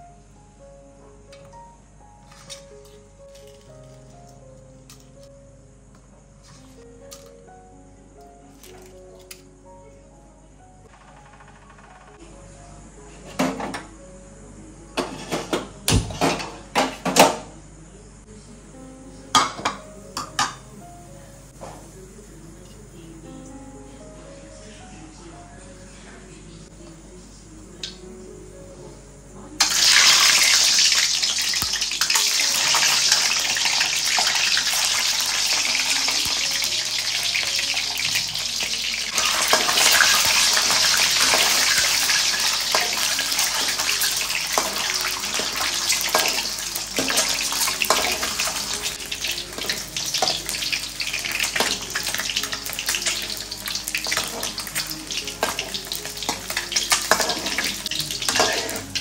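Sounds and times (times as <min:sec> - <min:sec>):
eggs sizzling in hot oil: 0:29.6 - 0:59.0.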